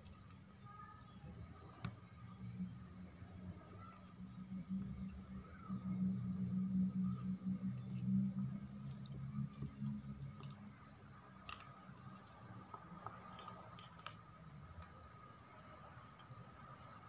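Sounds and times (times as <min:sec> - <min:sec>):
low hum: 0:00.0 - 0:17.0
kitten chewing and crunching: 0:08.3 - 0:17.0.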